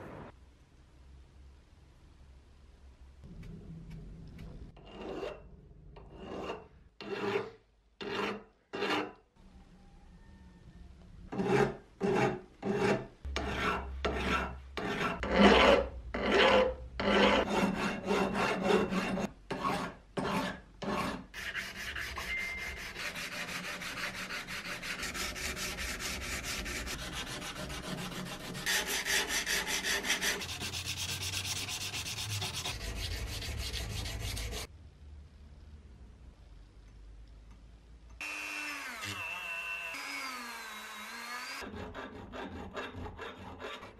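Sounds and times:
sandpaper scraping steel: 11.4s - 34.7s.

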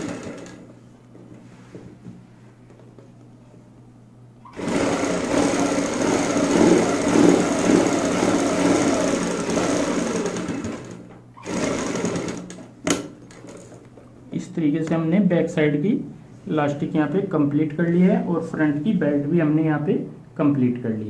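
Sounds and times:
sewing machine stitching: 0.0s - 0.6s, 4.5s - 12.7s.

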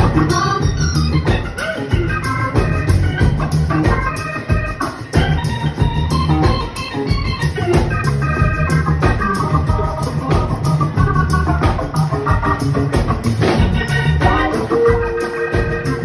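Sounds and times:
bass and drums funk beat: 0.0s - 16.0s
organ solo: 0.0s - 16.0s.

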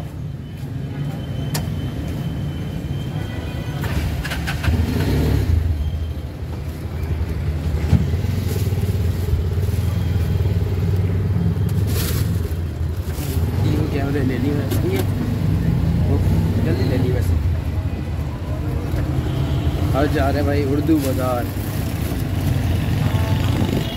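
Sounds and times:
auto-rickshaw engine running: 3.8s - 23.9s.

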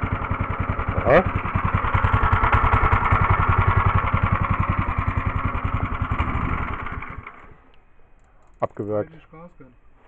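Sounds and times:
petrol engine running: 0.0s - 7.5s.

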